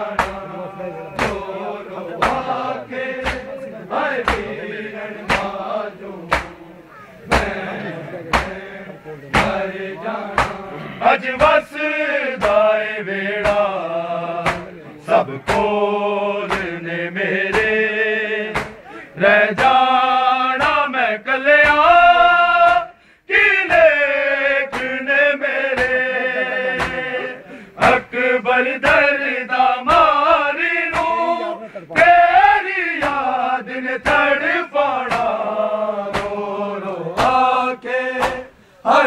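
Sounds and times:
men chanting a lament: 0.0 - 39.0
chest slaps: 0.2 - 0.4, 1.2 - 1.4, 2.2 - 2.5, 3.2 - 3.5, 4.2 - 4.5, 6.3 - 6.6, 7.3 - 7.6, 8.3 - 8.6, 9.4 - 9.6, 10.4 - 10.6, 14.4 - 14.7, 18.6 - 18.8, 26.8 - 27.0, 30.9 - 31.1, 36.1 - 36.4.

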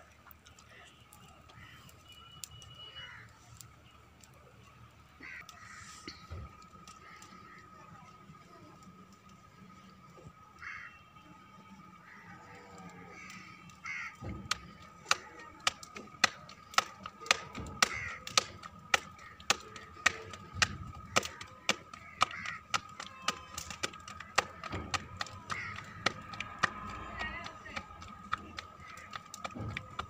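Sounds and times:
bird calls: 12.0 - 30.0
hands slapping dough: 14.3 - 30.0.

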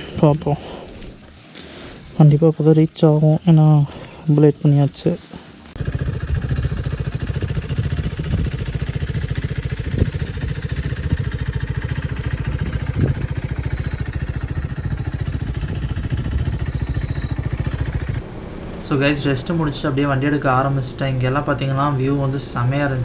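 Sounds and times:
motorcycle engine idling: 5.0 - 23.0.

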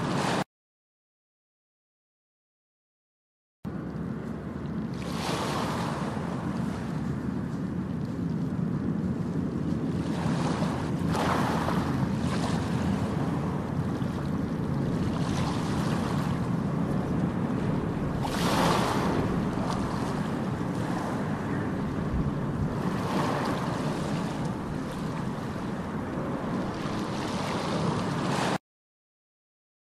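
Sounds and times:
ocean surf rushing: 0.0 - 0.4, 4.9 - 7.3, 9.9 - 28.6
waves washing in: 0.0 - 0.4, 3.7 - 28.6.

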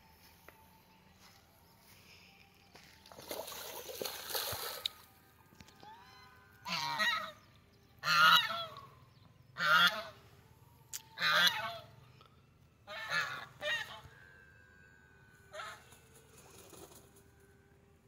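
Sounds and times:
geese honking: 6.6 - 8.9, 9.6 - 10.3, 11.2 - 12.0, 12.8 - 14.4, 15.4 - 16.0.

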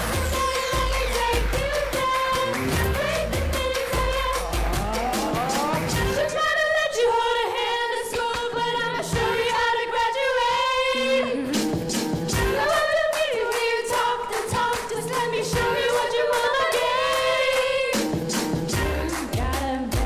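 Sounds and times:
percussive beats: 0.0 - 6.3, 11.6 - 20.0
group singing in harmony: 0.0 - 19.3.

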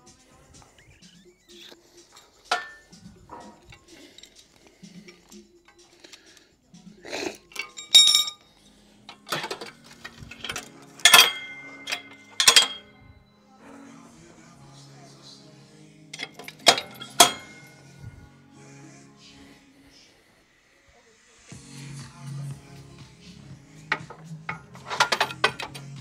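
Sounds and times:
sharp metallic clinks and clanks: 2.0 - 6.4, 7.5 - 13.0, 16.2 - 17.8, 23.9 - 26.0.

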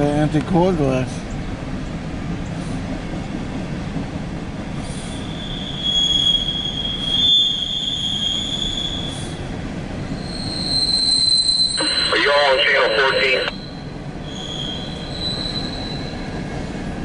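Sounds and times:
steel wheels rumbling on rail: 0.0 - 17.0
high wheel squeal: 4.8 - 16.5.

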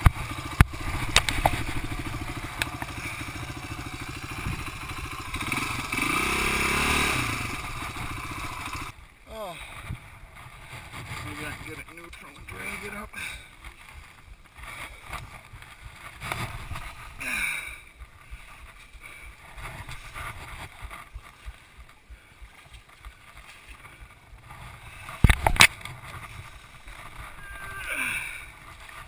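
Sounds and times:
camera rustling and handling noise: 0.9 - 3.0, 25.0 - 27.4.

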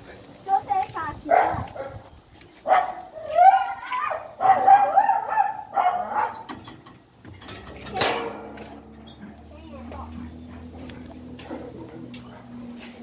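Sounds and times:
dog barking: 1.3 - 2.0, 2.6 - 6.5.

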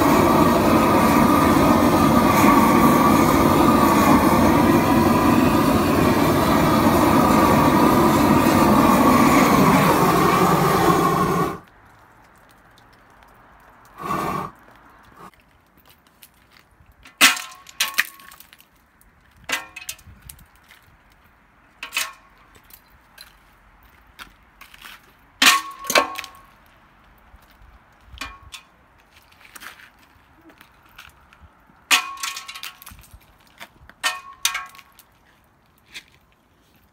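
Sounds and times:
blower running: 0.0 - 11.6, 14.0 - 14.5.

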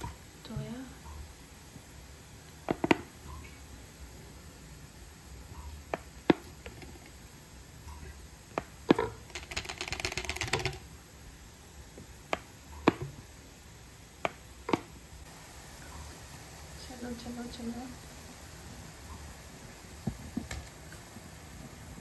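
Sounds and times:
plastic bottle clicking on dough: 2.6 - 3.1, 5.9 - 7.2, 8.5 - 10.9, 12.3 - 13.2, 14.2 - 14.9.

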